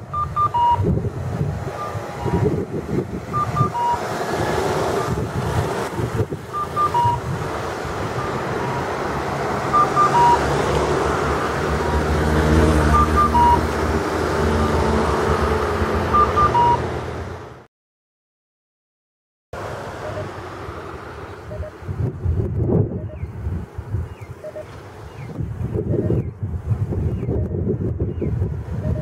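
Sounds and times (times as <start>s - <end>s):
electronic cuckoo crossing signal: 0.0s - 0.9s, 1.7s - 2.6s, 3.3s - 4.0s, 6.5s - 7.3s, 8.2s - 8.9s, 9.7s - 10.5s, 12.8s - 13.7s, 16.1s - 16.9s, 20.0s - 20.3s, 21.5s - 21.8s, 23.0s - 23.3s, 24.4s - 24.7s
road traffic rumbling: 0.0s - 17.7s, 19.6s - 29.0s.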